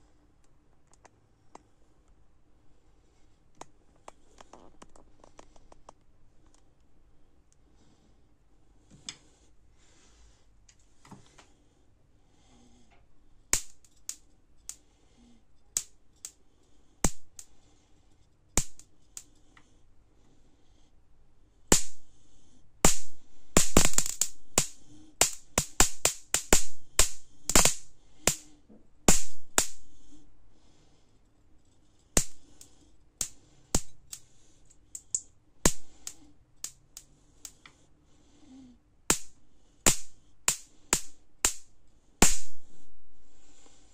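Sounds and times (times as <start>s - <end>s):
electric sparks snapping: 13.5s - 14.8s, 18.6s - 19.3s, 21.7s - 22.0s, 22.8s - 28.5s, 29.1s - 30.0s, 32.2s - 34.2s, 34.9s - 36.8s, 39.1s - 42.6s.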